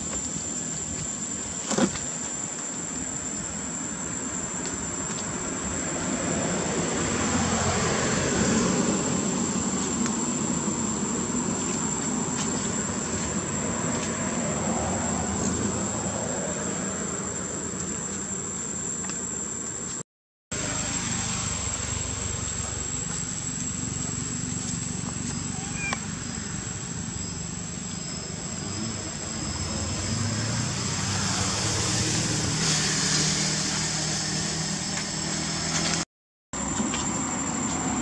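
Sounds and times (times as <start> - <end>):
high-pitched insect drone: 20.6 - 36.0.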